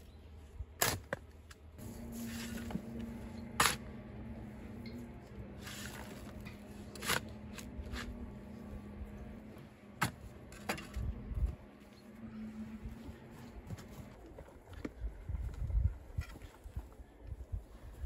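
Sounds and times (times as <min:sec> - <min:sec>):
shovel striking stony soil: 0:00.8 - 0:01.3, 0:01.9 - 0:03.9, 0:05.6 - 0:08.2, 0:10.0 - 0:11.1.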